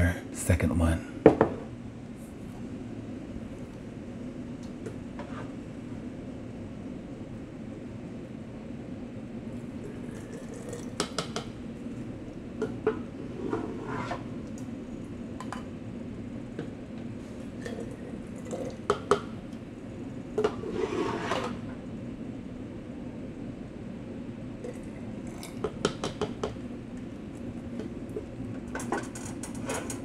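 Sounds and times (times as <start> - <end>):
salt and water pouring: 9.8 - 11.0.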